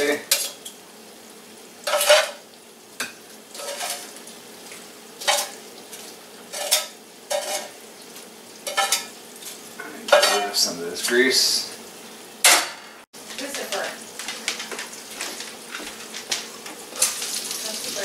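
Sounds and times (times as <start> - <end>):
bacon fat sizzling: 0.0 - 18.0
tongs clattering against frying pan: 6.5 - 7.8, 8.6 - 10.6.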